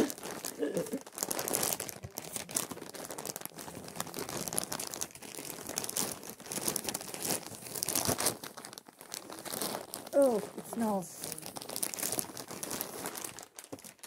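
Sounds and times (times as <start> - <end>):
plastic packaging crinkling: 0.0 - 14.0.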